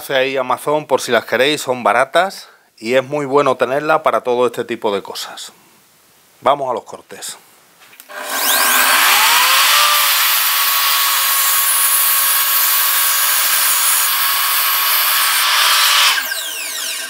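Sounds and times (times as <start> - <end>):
mitre saw motor whine: 8.1 - 17.0
saw blade cutting board: 8.1 - 17.0.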